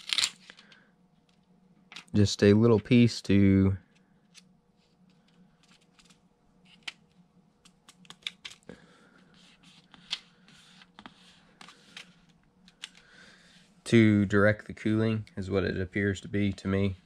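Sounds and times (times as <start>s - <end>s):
adhesive film clicks and crinkles: 7.6s - 8.6s.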